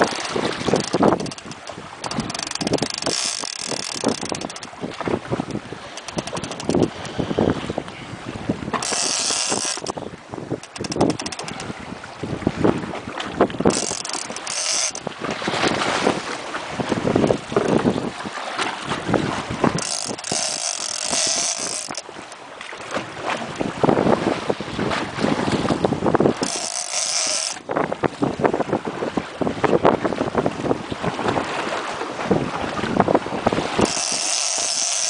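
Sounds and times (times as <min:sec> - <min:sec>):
fishing reel clicker ticking: 0:00.0 - 0:04.8, 0:05.4 - 0:07.3, 0:08.8 - 0:10.0, 0:10.6 - 0:11.7, 0:13.7 - 0:15.1, 0:19.7 - 0:22.4, 0:26.4 - 0:27.7, 0:33.8 - 0:35.0
wind buffeting microphone: 0:00.0 - 0:35.0.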